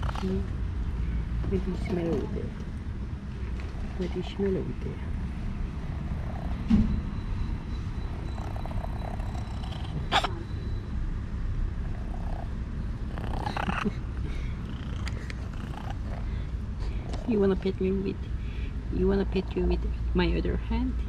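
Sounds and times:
kitten purring: 0.0 - 0.5, 8.0 - 10.5, 11.8 - 14.0, 14.6 - 16.3.

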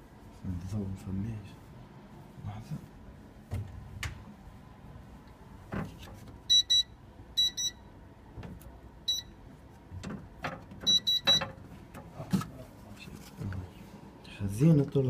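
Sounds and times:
keypad beeps: 6.5 - 7.8, 9.1 - 9.4, 10.8 - 11.5.

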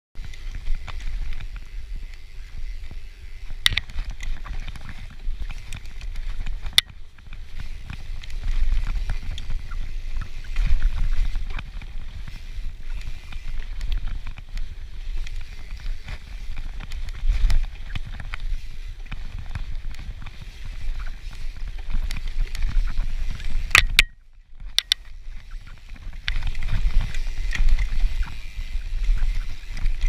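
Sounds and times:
mountain bike rumbling on dirt: 0.2 - 30.0
sharp clacks: 23.7 - 25.1.

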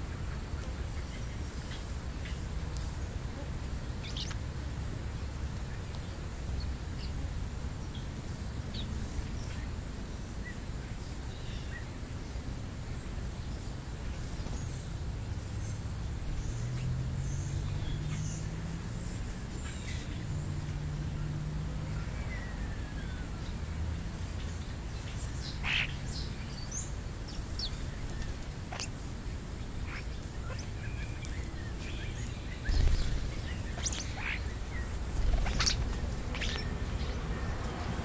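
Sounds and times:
birds chirping: 0.0 - 38.0
steady low rumble: 23.1 - 38.0.

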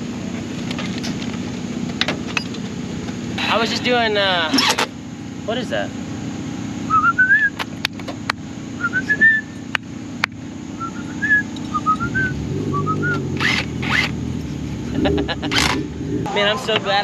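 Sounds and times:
steady low hum: 0.0 - 16.6
whistled rising phrases: 6.9 - 7.6, 8.8 - 9.6, 10.8 - 13.3.

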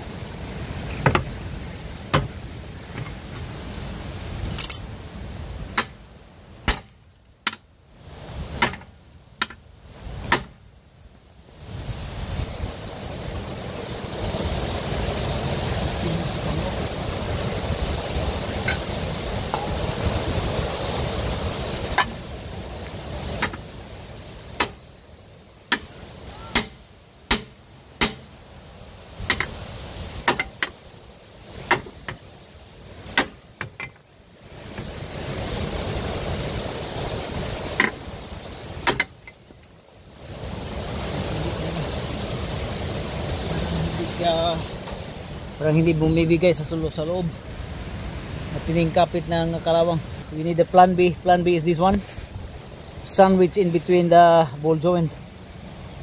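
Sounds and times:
steady rushing noise: 11.3 - 56.0
hammer striking steel: 25.7 - 28.3.

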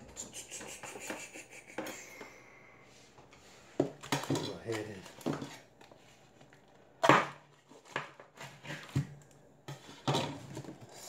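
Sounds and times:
kitchen items clunking on counter: 3.7 - 5.6, 7.0 - 11.0.

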